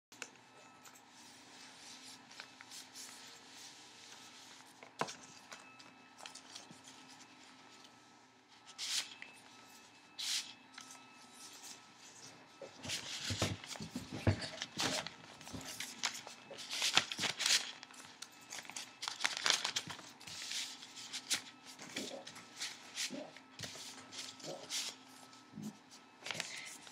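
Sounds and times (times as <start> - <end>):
paper rustling and crinkling: 8.5 - 26.9.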